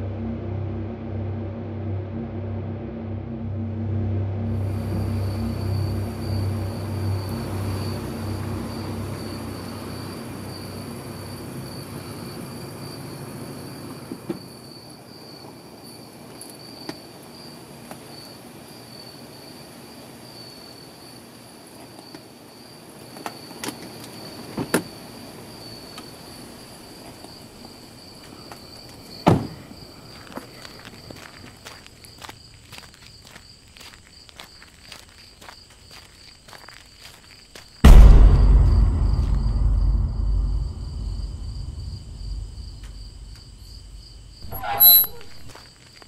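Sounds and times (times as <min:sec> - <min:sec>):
low music drone: 0:00.0 - 0:12.5, 0:37.9 - 0:44.3
crickets chirping: 0:03.8 - 0:46.0.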